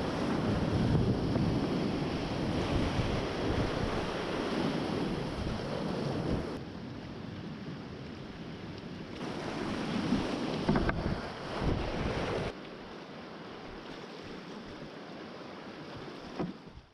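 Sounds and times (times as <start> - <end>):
wind rumble on microphone: 0.0 - 12.6.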